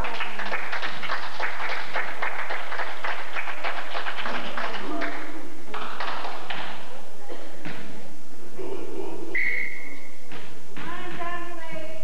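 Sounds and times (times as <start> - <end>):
spectators clapping: 0.0 - 6.8.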